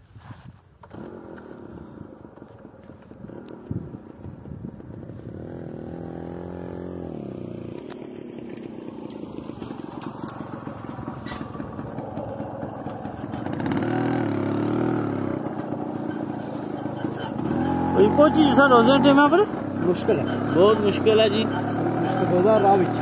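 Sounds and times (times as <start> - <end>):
rumble with clatter: 0.8 - 6.2, 7.0 - 18.0
tractor engines passing: 0.8 - 23.0.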